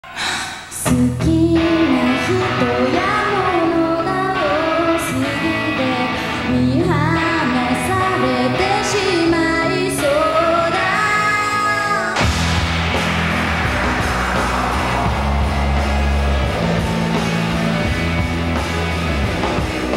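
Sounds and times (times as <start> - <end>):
woman singing: 0.7 - 12.2
rock band playing: 0.9 - 19.9.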